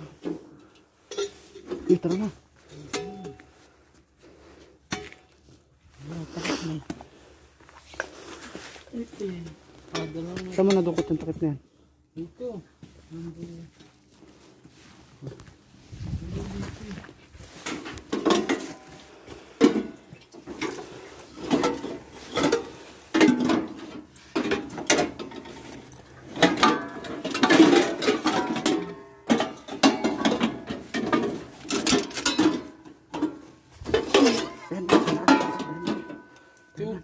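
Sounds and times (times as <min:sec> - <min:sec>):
metal pots clanking: 0:00.1 - 0:03.5, 0:17.5 - 0:36.8.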